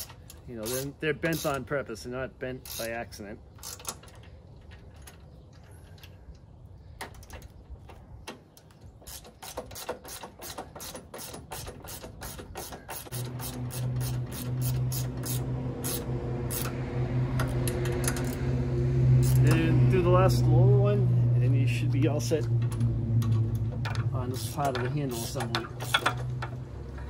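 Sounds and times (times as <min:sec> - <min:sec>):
ratchet wrench clicking: 0:00.0 - 0:01.6, 0:02.6 - 0:02.9, 0:09.1 - 0:16.8, 0:19.2 - 0:19.6, 0:23.2 - 0:26.6.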